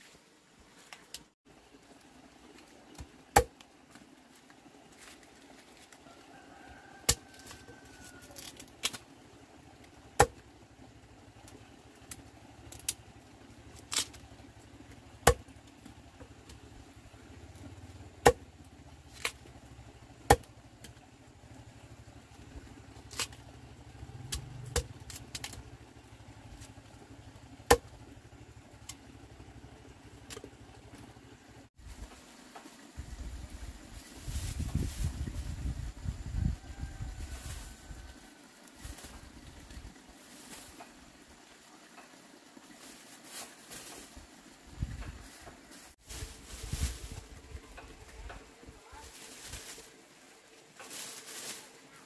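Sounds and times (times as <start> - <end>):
knife chopping bamboo: 3.0 - 3.7, 7.0 - 7.6, 9.9 - 10.5, 13.8 - 15.6, 18.2 - 18.5, 20.2 - 21.0, 24.2 - 25.6, 27.6 - 28.0, 30.3 - 30.6.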